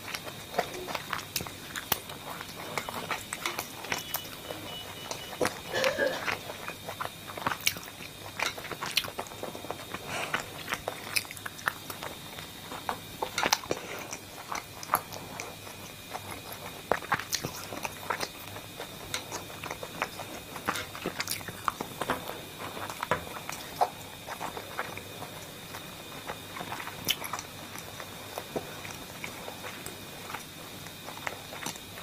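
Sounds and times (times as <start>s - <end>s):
crisp food crunching: 0.0s - 32.0s
person chewing: 0.0s - 32.0s.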